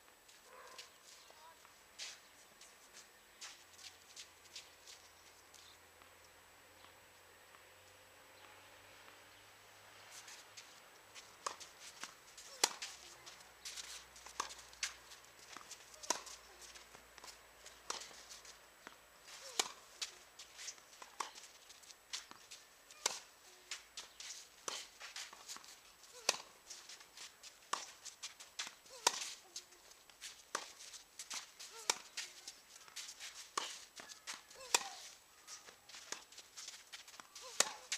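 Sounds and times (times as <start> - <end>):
footsteps: 0.2 - 5.8, 9.9 - 37.9
tennis ball hit by rackets: 11.3 - 15.0, 15.6 - 16.4, 17.2 - 18.2, 18.8 - 21.4, 22.2 - 26.6, 27.7 - 28.0, 28.6 - 29.4, 30.5 - 32.3, 32.9 - 36.3, 37.1 - 37.9.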